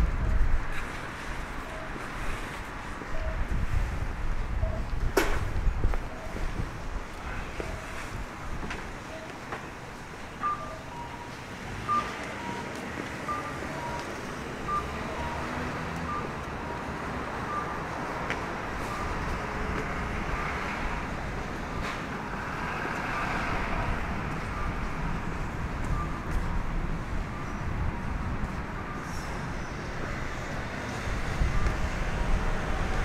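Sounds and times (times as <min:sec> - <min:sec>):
street traffic rumble: 0:00.0 - 0:33.0
two-pitch electronic beeps: 0:10.4 - 0:12.7, 0:13.3 - 0:14.1, 0:14.7 - 0:15.5.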